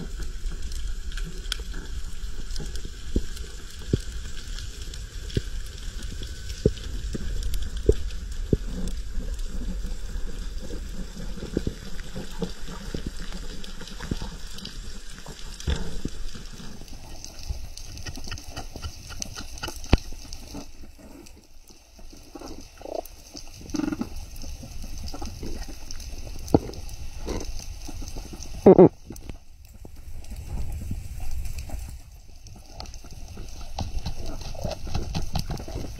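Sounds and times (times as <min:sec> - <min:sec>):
underwater rush of water: 0:00.0 - 0:35.9
underwater clicks and knocks: 0:17.5 - 0:20.4, 0:33.5 - 0:35.9.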